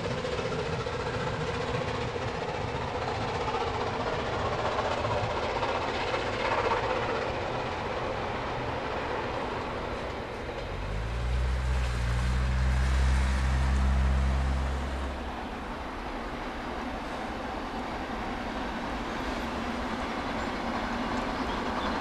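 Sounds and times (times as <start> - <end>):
distant steam locomotive rushing: 0.0 - 22.0
passing car engine hum: 10.7 - 15.7.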